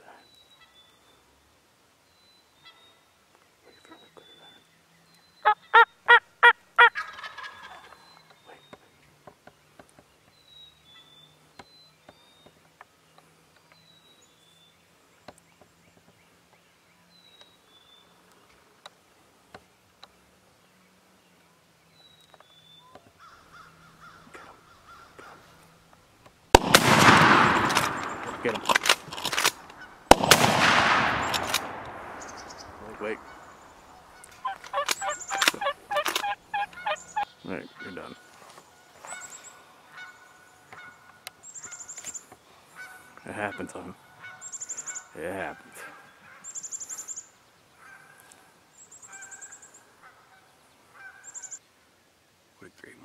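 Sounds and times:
turkey gobbling: 0:05.4 - 0:08.0, 0:32.2 - 0:38.2, 0:39.9 - 0:40.2
small bird chirping: 0:32.0 - 0:38.2, 0:46.4 - 0:47.4.

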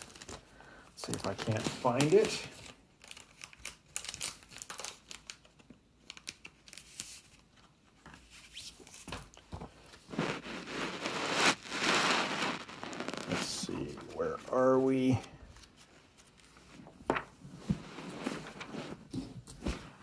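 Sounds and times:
plastic bag crinkling: 0:01.0 - 0:05.3, 0:10.3 - 0:14.3
paper pages rustling: 0:01.0 - 0:20.0.

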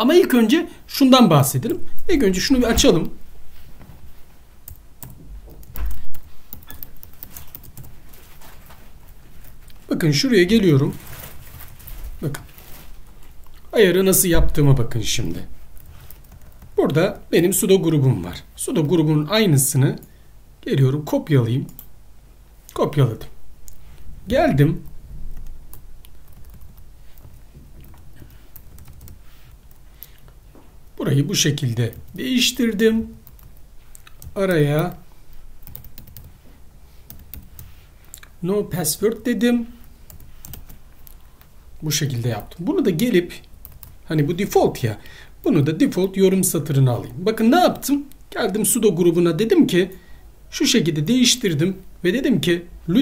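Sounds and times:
faint low hum: 0:00.0 - 0:53.0
keyboard typing clicks: 0:04.6 - 0:08.0.

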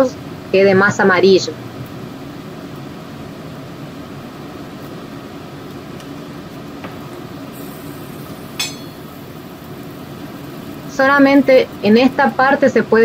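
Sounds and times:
broth bubbling in a pan: 0:01.8 - 0:13.0
sharp clink: 0:08.6 - 0:09.2.

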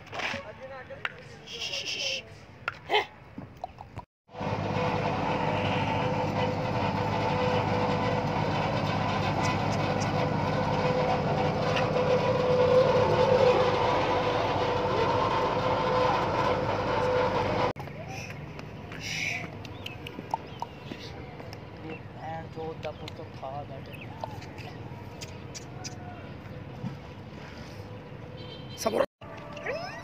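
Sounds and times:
large engine droning: 0:04.3 - 0:27.7.

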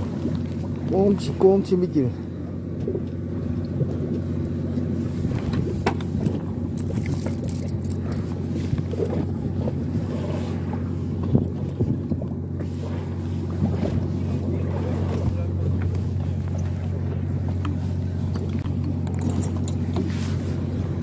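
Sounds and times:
boat engine humming: 0:00.0 - 0:21.0.

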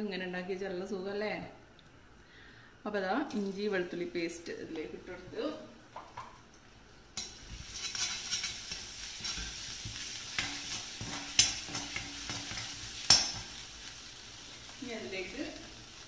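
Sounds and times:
spatula clacking against pan: 0:07.2 - 0:13.6
food sizzling in hot oil: 0:07.2 - 0:16.0.

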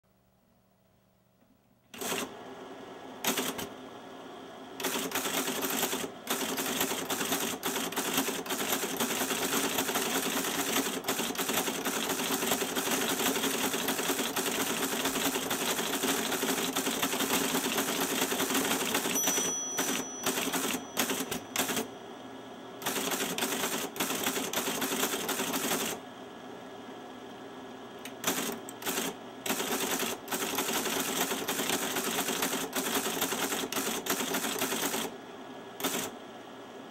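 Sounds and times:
teleprinter clattering: 0:04.8 - 0:21.9.

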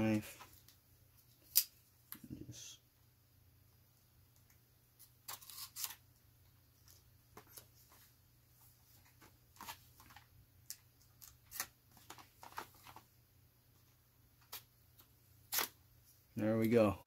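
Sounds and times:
knife scraping plastic packaging: 0:05.3 - 0:06.0.

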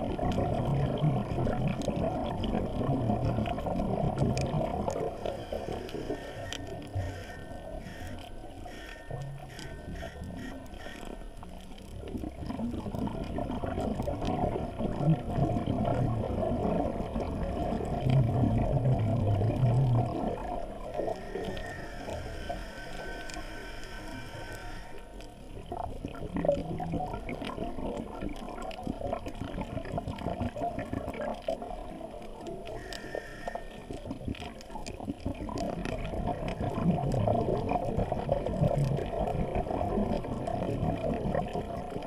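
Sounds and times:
underwater exhaled bubbles gurgling: 0:00.0 - 0:42.0
regulator hiss: 0:21.0 - 0:25.2.

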